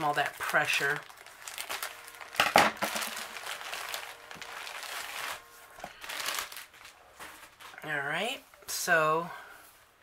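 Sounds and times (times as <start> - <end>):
plastic packaging crinkling: 0.0 - 8.0.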